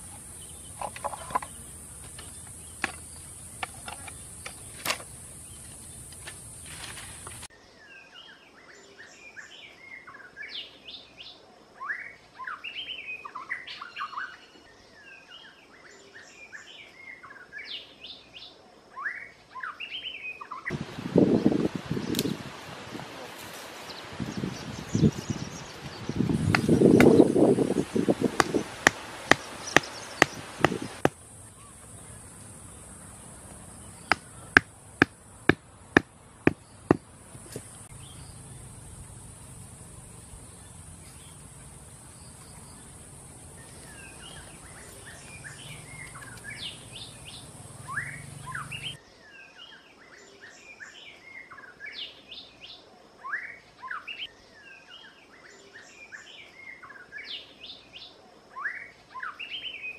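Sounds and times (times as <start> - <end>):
birds chirping: 0.0 - 22.5, 23.1 - 59.9
stakes hammered into ground: 26.4 - 27.3, 28.2 - 31.2, 34.0 - 37.7.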